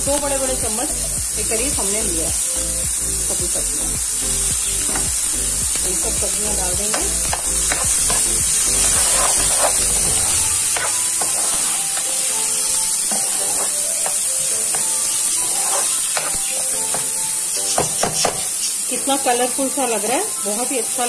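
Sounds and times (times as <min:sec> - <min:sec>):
vegetables sizzling in oil: 0:00.0 - 0:21.0
metal spatula scraping a pan: 0:06.9 - 0:18.7.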